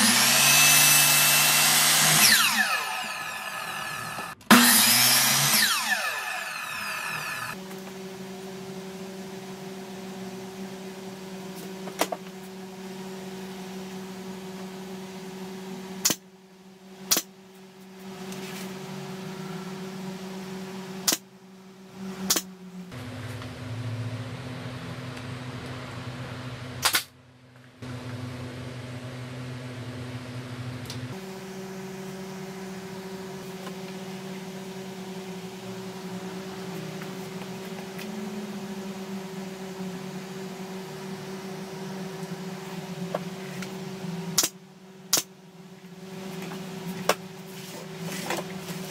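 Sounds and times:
pneumatic nailer firing: 0:00.0 - 0:07.6, 0:16.0 - 0:16.2, 0:26.8 - 0:27.1, 0:44.4 - 0:45.3
motor hum: 0:00.0 - 0:48.9.

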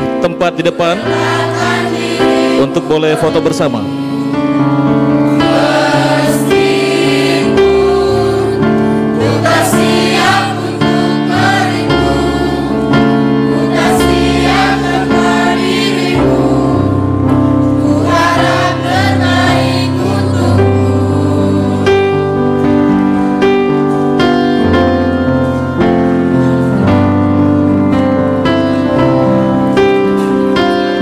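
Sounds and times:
mixed choir singing: 0:00.6 - 0:23.8.

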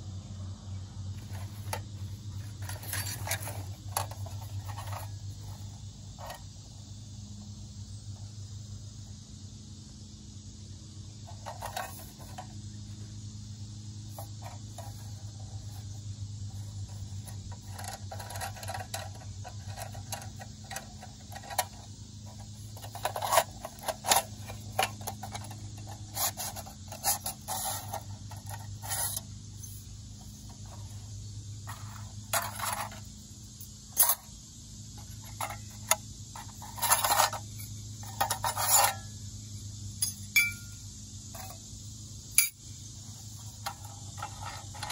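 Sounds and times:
metal panels scraping and clicking: 0:01.2 - 0:06.4, 0:11.3 - 0:12.5, 0:16.5 - 0:29.9, 0:31.7 - 0:33.1, 0:33.9 - 0:34.3, 0:35.0 - 0:39.0, 0:43.4 - 0:44.9.

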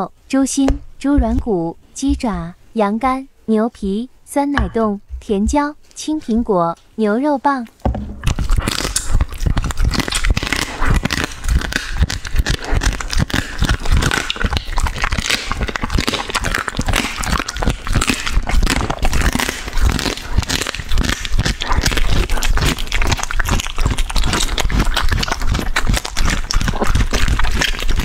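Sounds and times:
dog chewing and crunching food: 0:08.2 - 0:28.0.

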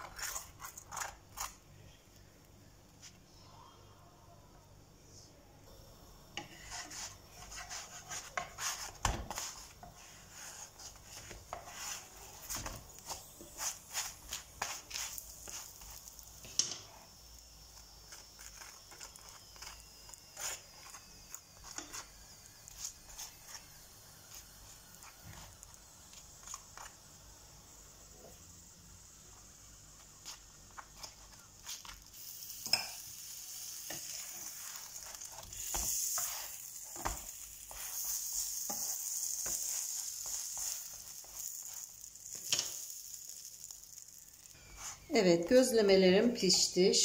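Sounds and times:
metal fork scraping a pan: 0:00.0 - 0:01.5, 0:20.4 - 0:22.1, 0:32.6 - 0:33.1
faint steady hiss: 0:01.2 - 0:47.0.

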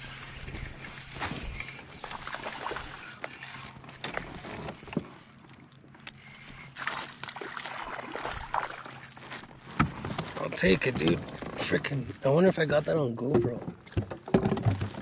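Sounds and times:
fishing reel whirring: 0:00.0 - 0:11.4
reel clicks: 0:00.0 - 0:12.3.

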